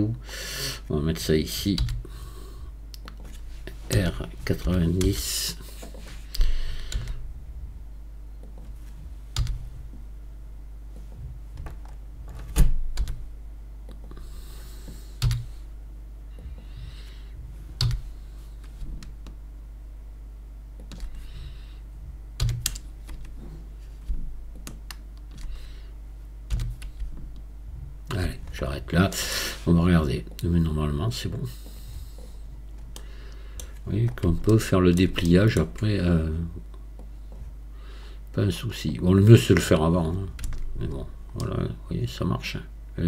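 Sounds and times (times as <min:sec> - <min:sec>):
low electrical hum: 0:00.0 - 0:43.0
keyboard and mouse clicks: 0:02.9 - 0:04.0, 0:20.8 - 0:21.2, 0:22.4 - 0:23.3, 0:24.5 - 0:25.5.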